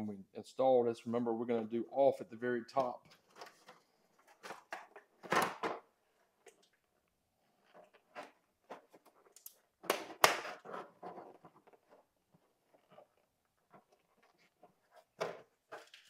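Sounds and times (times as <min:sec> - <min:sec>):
plastic scrape: 0:10.4 - 0:16.0.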